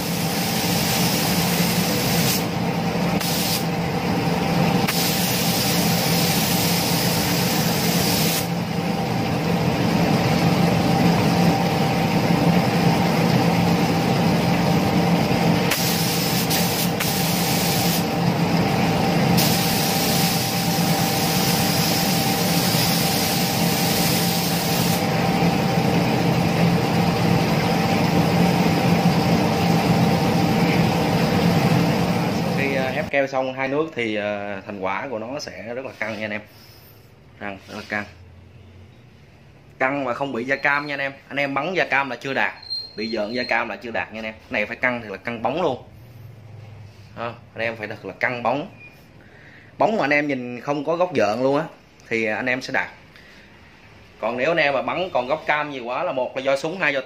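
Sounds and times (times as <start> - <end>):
spray gun air hiss: 0.0 - 2.6, 3.2 - 3.7, 4.8 - 8.6, 15.7 - 18.2, 19.4 - 25.2
steady mechanical hum: 0.0 - 57.0.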